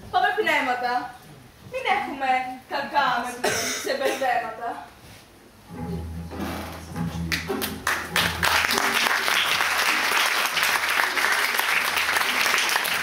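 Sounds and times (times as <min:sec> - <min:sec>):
audience clapping: 0:07.3 - 0:13.0.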